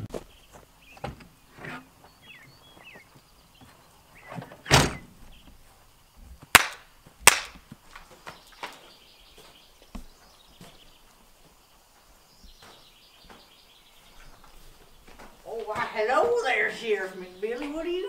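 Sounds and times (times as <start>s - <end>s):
faint bird chirps: 0.3s - 5.5s
truck door slamming: 4.4s - 5.2s
sharp cracks: 6.5s - 8.9s.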